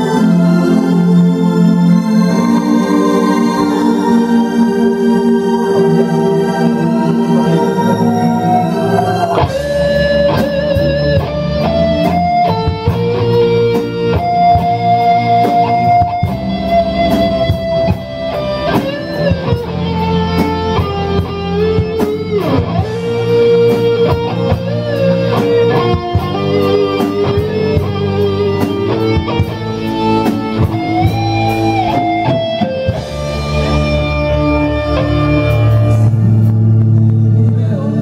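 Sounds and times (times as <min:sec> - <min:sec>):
bass guitar: 0:00.0 - 0:38.0
electric guitar lead melody: 0:00.0 - 0:38.0
steady drum beat: 0:09.2 - 0:37.7.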